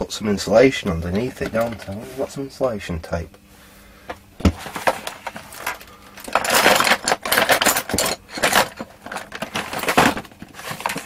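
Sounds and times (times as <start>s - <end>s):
small hard objects clattering: 4.5s - 11.0s.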